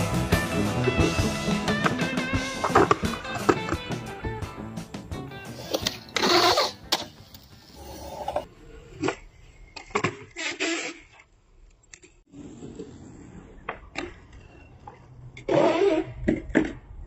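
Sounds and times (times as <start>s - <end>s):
skateboard wheels rolling on concrete: 0.0s - 10.0s, 12.3s - 17.0s
skateboard clacks: 1.6s - 4.1s.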